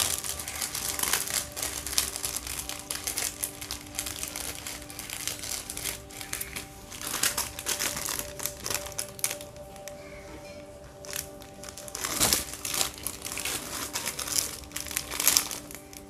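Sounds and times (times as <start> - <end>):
faint music tones: 0.0 - 16.0
plastic packets crinkling: 0.0 - 16.0.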